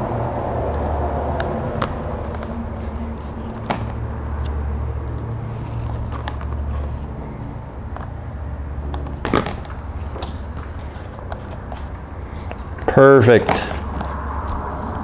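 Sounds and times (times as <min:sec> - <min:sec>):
low steady hum: 0:00.0 - 0:15.0
tape clicks and rustles: 0:01.4 - 0:08.2, 0:08.8 - 0:15.0.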